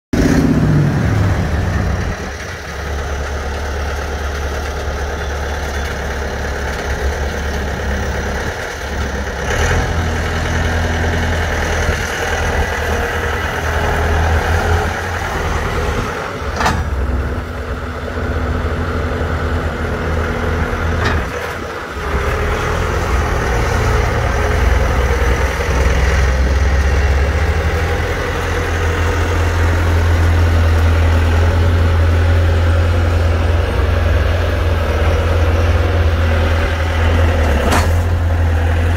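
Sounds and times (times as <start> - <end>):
diesel engine running: 0.1 - 38.9.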